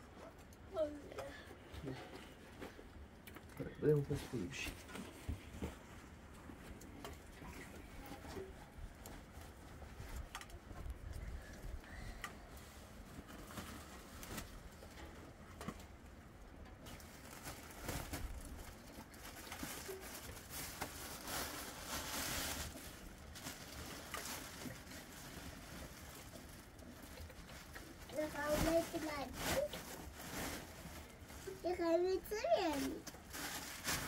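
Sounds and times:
plastic bag rustling: 0:12.4 - 0:16.1, 0:16.8 - 0:34.0.

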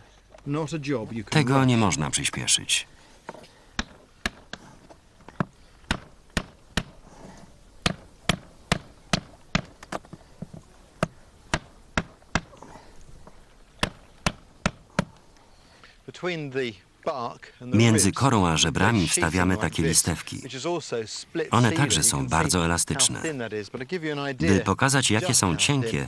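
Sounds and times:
sharp knocks on wood: 0:05.4 - 0:07.0, 0:07.8 - 0:10.0.

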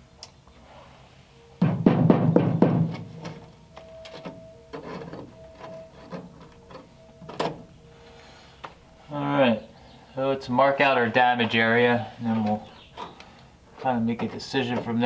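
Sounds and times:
background music with held notes: 0:00.4 - 0:13.8
rusted metal crunching: 0:01.6 - 0:08.0, 0:11.1 - 0:15.0.

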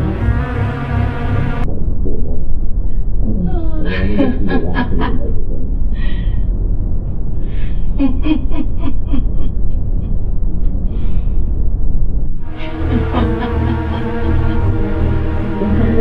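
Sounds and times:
low rumble: 0:00.0 - 0:16.0
person laughing: 0:03.4 - 0:06.3, 0:07.7 - 0:10.3, 0:12.5 - 0:16.0.

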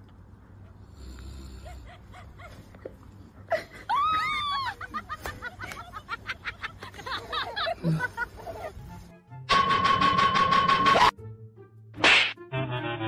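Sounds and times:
person giggling: 0:03.5 - 0:08.8.

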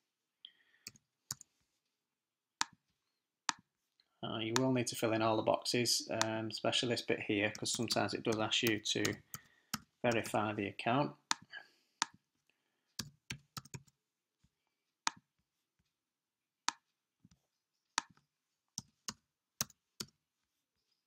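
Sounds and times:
computer keyboard keystrokes: 0:13.0 - 0:13.9.

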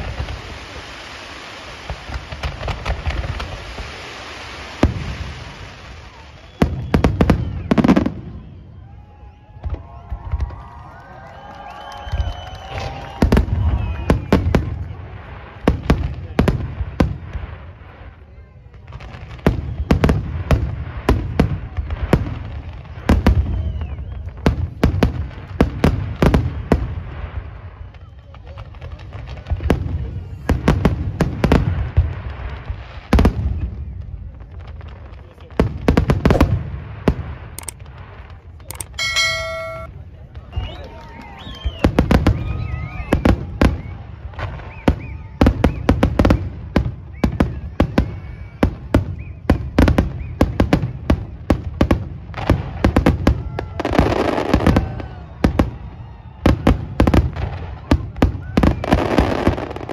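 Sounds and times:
fireworks bangs: 0:00.0 - 0:17.8, 0:34.5 - 0:59.9
fireworks crackling: 0:00.0 - 0:46.9, 0:47.5 - 0:59.9
low rumble and crackle: 0:14.6 - 0:25.8.

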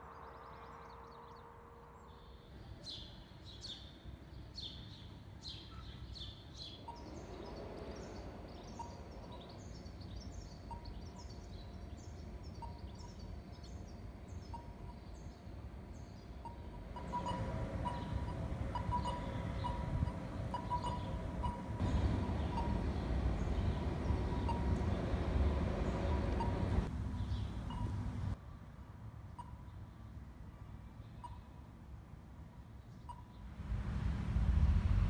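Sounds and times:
birds chirping: 0:00.0 - 0:28.4
low steady hum: 0:06.8 - 0:28.4.

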